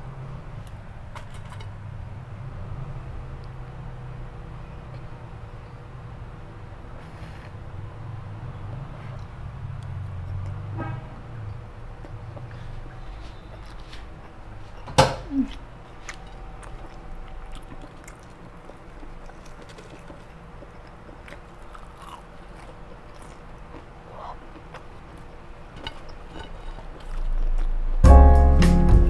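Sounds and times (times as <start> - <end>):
piano music: 28.0 - 29.0.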